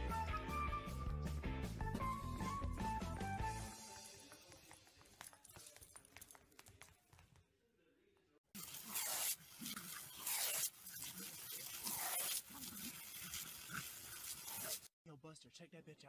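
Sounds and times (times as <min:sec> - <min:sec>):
hose nozzle spraying water: 0:08.6 - 0:14.9.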